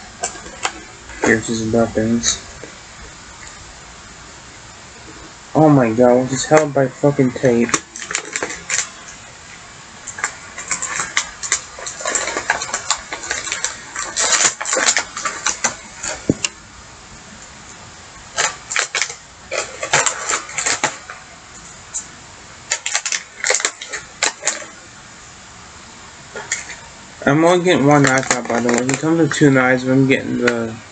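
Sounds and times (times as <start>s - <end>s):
plastic packaging crinkling: 0.0s - 3.6s, 5.1s - 16.6s, 18.2s - 24.9s, 26.3s - 29.6s.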